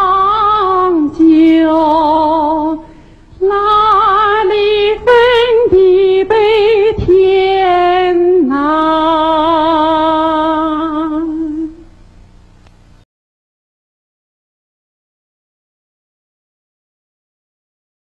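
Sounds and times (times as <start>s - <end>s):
woman singing with vibrato: 0.0s - 12.0s.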